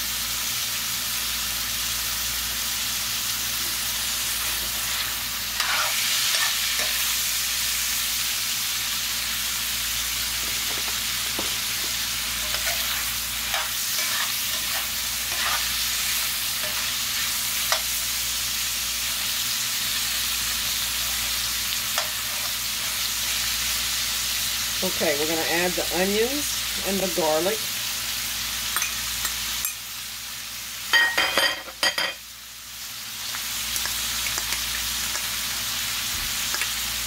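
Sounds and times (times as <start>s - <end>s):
meat sizzling in a skillet: 0.0s - 37.0s
metal spoon scraping a skillet: 4.4s - 7.1s, 10.3s - 17.9s, 21.2s - 23.1s.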